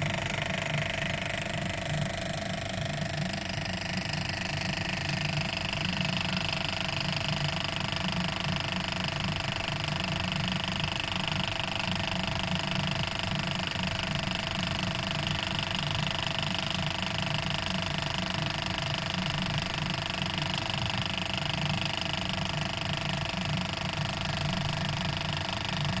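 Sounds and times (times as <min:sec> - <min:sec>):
machine hum: 0:00.0 - 0:06.8.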